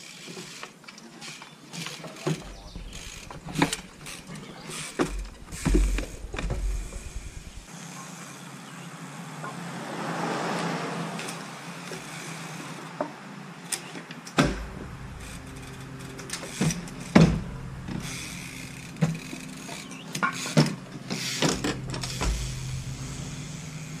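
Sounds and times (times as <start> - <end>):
bike knocking on wood: 2.2 - 7.7, 14.4 - 23.8
steady low hum: 2.5 - 7.7, 14.5 - 19.6, 21.5 - 24.0.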